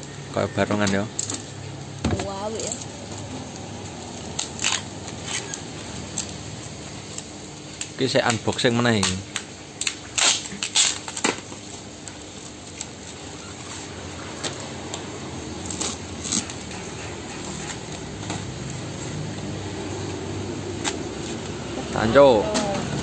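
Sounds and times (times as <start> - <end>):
plastic crinkling: 0.8 - 19.0
box cutter slitting tape: 4.3 - 6.4, 8.9 - 11.6, 13.6 - 18.7.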